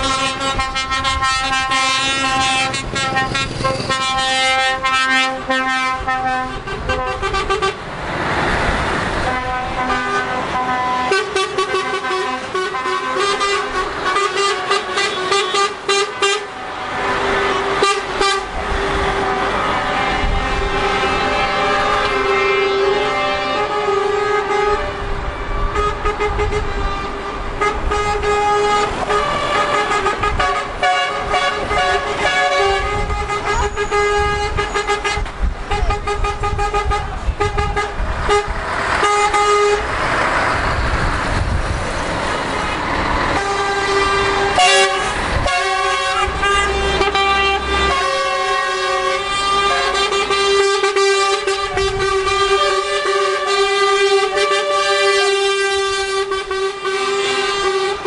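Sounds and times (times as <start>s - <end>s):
truck horns blowing: 0.0s - 7.9s, 8.6s - 41.5s, 43.1s - 58.0s
diesel engines rumbling: 0.0s - 58.0s
lorry passing close: 7.8s - 10.6s, 37.1s - 56.2s.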